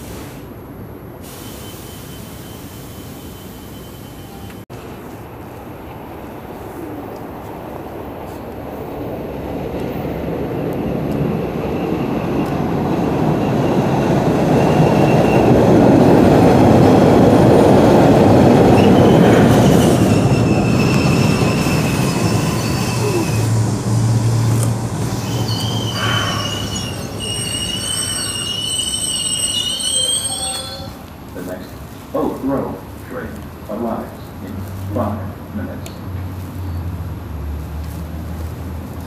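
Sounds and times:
subway train rumbling: 0.0 - 39.0
train wheels squealing: 1.4 - 4.5, 11.6 - 15.6, 18.8 - 23.7, 25.0 - 31.0.

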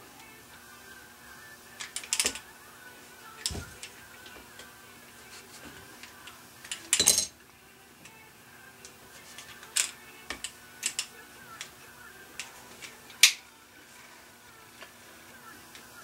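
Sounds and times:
pistol parts clicking and scraping: 1.8 - 2.4, 9.3 - 11.7, 12.4 - 13.4.

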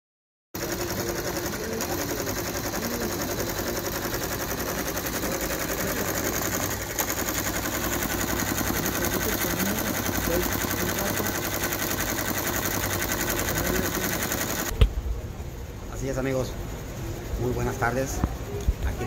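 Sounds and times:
embroidery machine stitching: 0.6 - 14.7.

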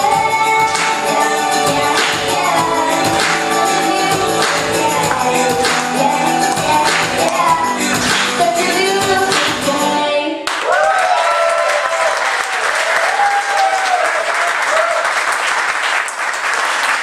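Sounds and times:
song with singing: 0.0 - 10.4
cheering voices: 10.5 - 15.4
congregation applauding: 10.5 - 17.0.

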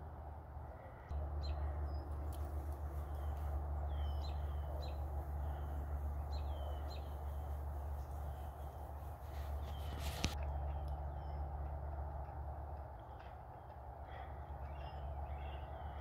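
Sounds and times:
low hum: 0.0 - 16.0
bird chirping: 0.7 - 11.7, 13.1 - 16.0.

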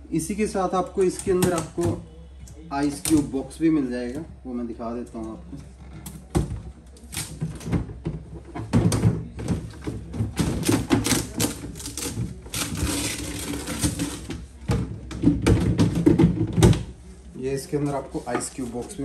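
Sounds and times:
plastic drawer clicking and knocking: 1.2 - 2.0, 6.1 - 16.9.

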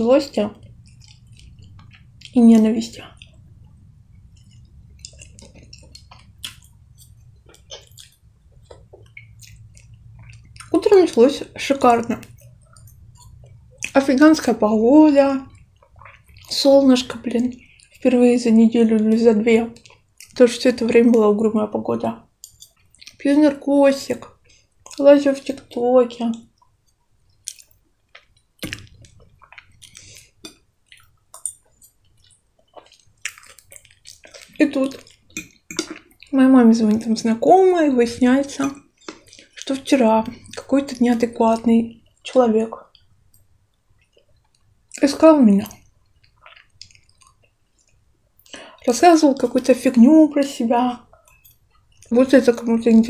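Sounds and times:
person chewing food: 0.0 - 18.2, 18.9 - 21.2, 22.2 - 23.3, 24.1 - 37.6, 38.2 - 50.1, 51.0 - 52.2
low hum: 0.0 - 19.4
wet mouth clicks and smacks: 0.6 - 10.8, 27.3 - 36.3, 38.8 - 39.7, 45.8 - 48.7.

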